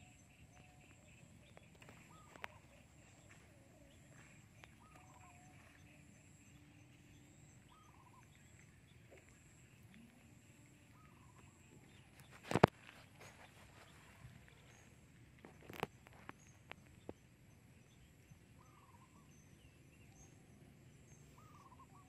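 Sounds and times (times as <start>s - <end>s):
bird calling: 0.0s - 17.2s, 17.8s - 22.0s.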